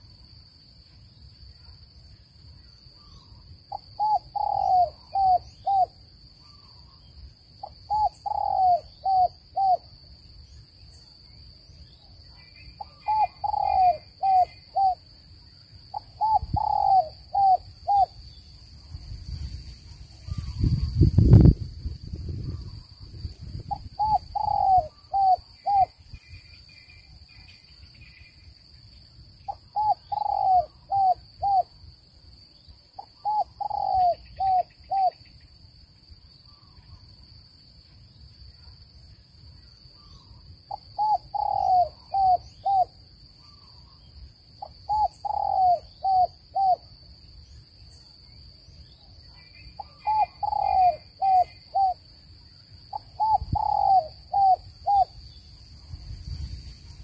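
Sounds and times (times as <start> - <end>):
dove cooing: 3.7 - 6.0, 7.6 - 9.8, 12.8 - 15.0, 15.9 - 18.2, 23.7 - 26.0, 29.5 - 31.7, 33.0 - 35.2, 40.7 - 43.6, 44.6 - 46.9, 49.8 - 52.0, 52.9 - 55.1.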